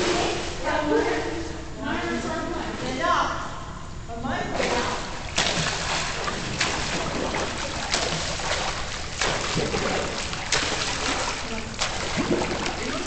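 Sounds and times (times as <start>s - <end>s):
swimmer splashing water: 4.5s - 13.0s.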